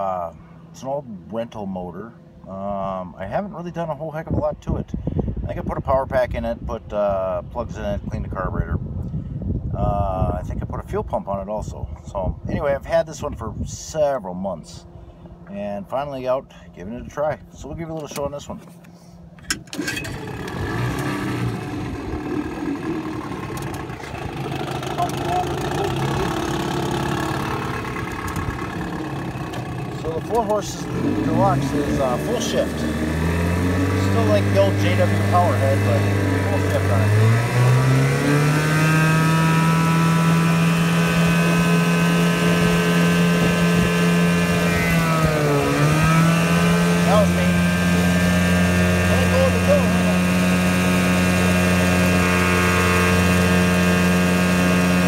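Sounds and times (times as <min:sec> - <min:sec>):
outboard motor idling: 0:00.0 - 0:03.5, 0:18.7 - 0:55.0.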